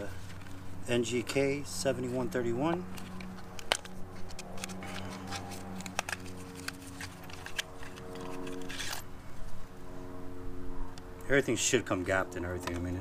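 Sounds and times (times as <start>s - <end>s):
low background hum: 0.0s - 13.0s
packaging rustling and clicks: 2.9s - 9.0s.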